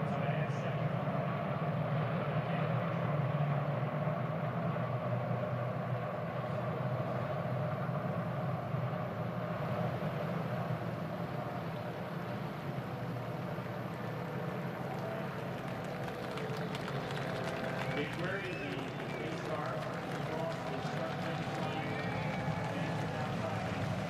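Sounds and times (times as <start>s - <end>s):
drone of many racing engines: 0.0s - 24.0s.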